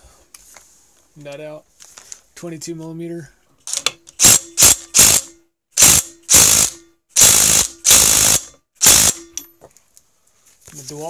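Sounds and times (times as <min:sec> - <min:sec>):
impact driver hammering: 0:03.7 - 0:09.5.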